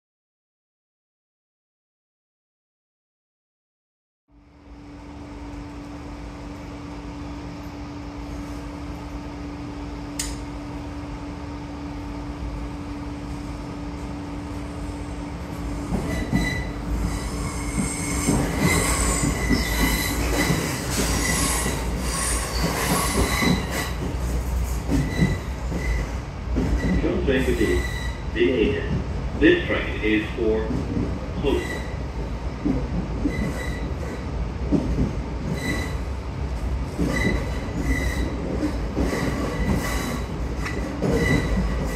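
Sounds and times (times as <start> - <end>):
train interior hum: 4.3 - 41.9
train running noise rattling: 5.0 - 41.9
high wheel squeal: 16.1 - 23.9.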